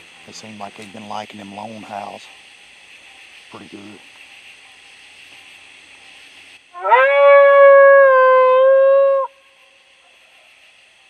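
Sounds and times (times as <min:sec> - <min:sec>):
coyote howl call: 0:06.7 - 0:09.6.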